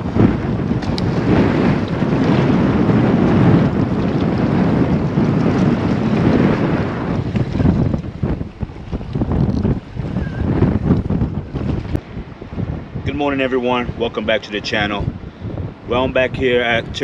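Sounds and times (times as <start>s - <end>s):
water washing against rocks: 0.0s - 10.0s
wind buffeting microphone: 0.0s - 17.0s.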